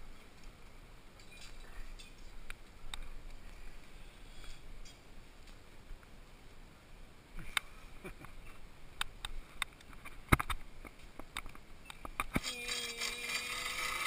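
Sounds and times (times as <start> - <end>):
pulley trolley whirring on cable: 12.4 - 14.0.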